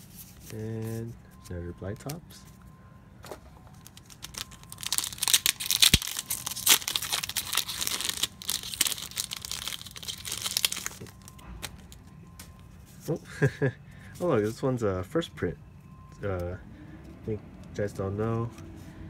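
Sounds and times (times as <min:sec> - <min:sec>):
wrapper tearing and crinkling: 0:03.7 - 0:12.0.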